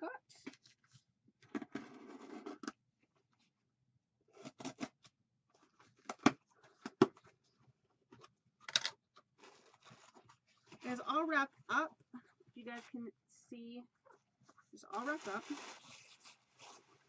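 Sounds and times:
tape and cardboard rustling: 9.4s - 11.1s, 14.9s - 17.0s.

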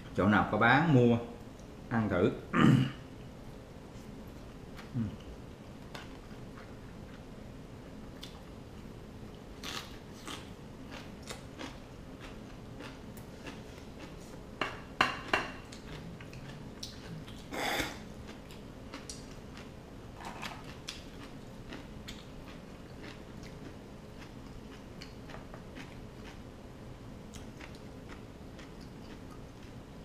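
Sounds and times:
chewing: 8.1s - 14.4s, 15.6s - 26.4s, 27.3s - 29.8s.

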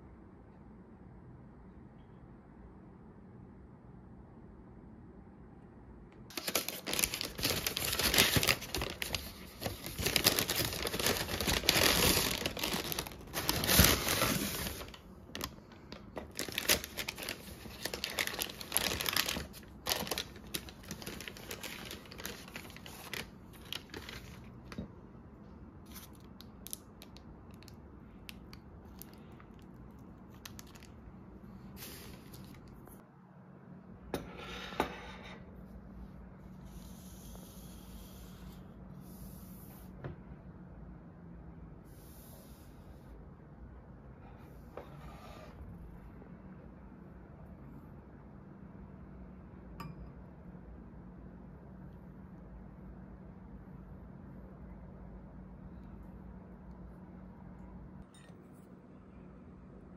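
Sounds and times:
paper wrapping crinkling: 6.3s - 24.8s, 25.9s - 27.7s, 28.9s - 31.0s.

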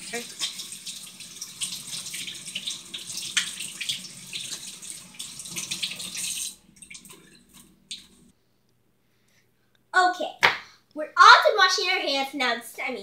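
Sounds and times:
faucet running into metal sink: 0.0s - 8.3s
hands rinsing and splashing: 0.0s - 8.3s.

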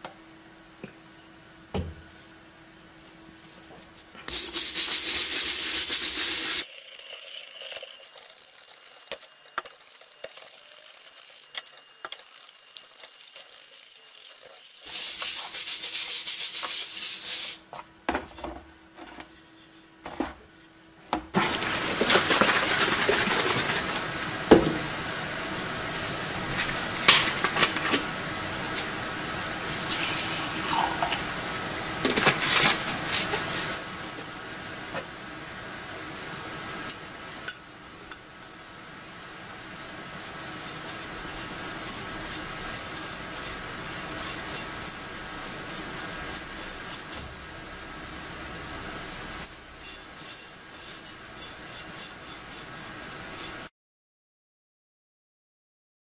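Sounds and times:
brush scrubbing metal: 3.0s - 6.6s, 8.0s - 17.6s, 39.2s - 47.4s, 49.0s - 53.7s.

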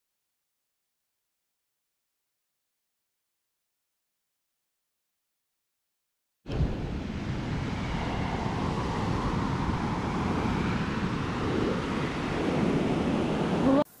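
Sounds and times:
waves breaking on beach: 6.5s - 13.9s
wind on microphone: 6.5s - 13.9s.

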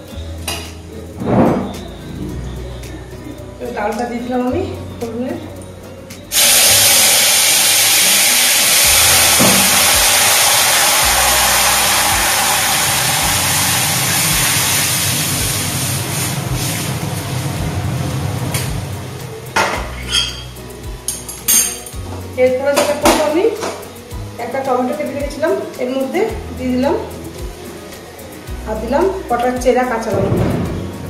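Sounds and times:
hissing sizzle of frying: 6.3s - 19.6s.

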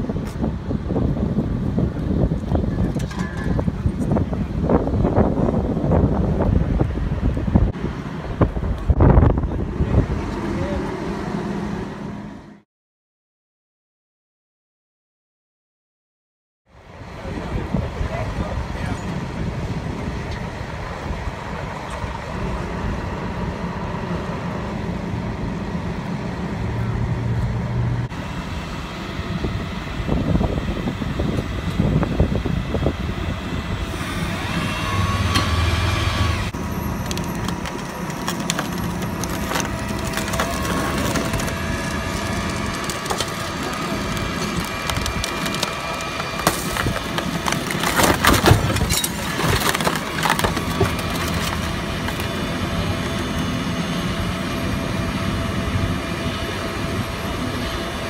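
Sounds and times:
tow truck engine running: 16.8s - 58.0s
metal and glass scraping pavement: 36.5s - 53.1s.

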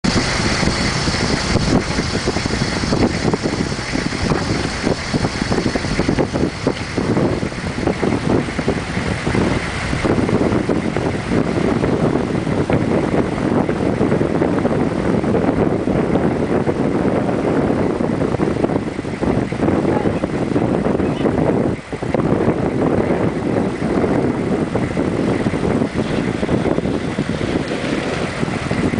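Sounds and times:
truck engine running: 0.0s - 28.9s
river water rushing: 24.8s - 28.9s.

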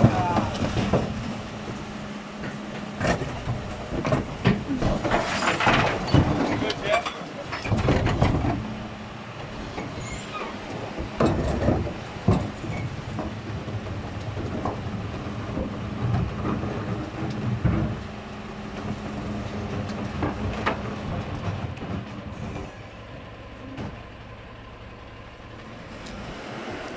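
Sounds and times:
metal clanks and knocks: 0.0s - 10.0s, 10.9s - 18.1s
refuse truck engine and hydraulics: 1.0s - 13.4s.

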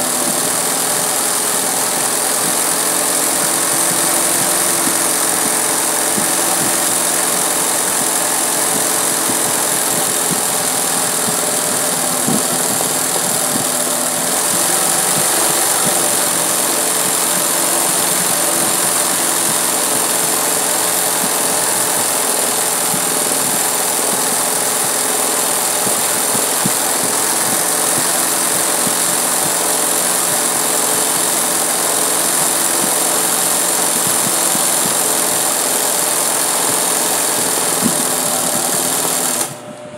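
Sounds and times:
sewing machine running: 0.0s - 39.7s.

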